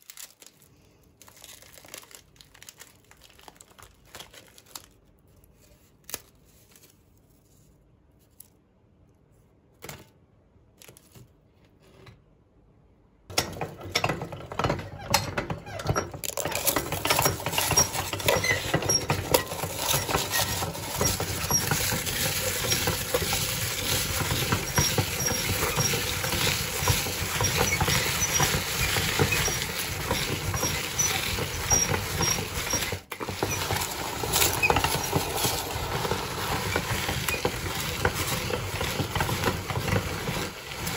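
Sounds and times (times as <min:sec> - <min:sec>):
rice cakes crunching in meat grinder: 0:01.2 - 0:05.1, 0:13.5 - 0:40.9.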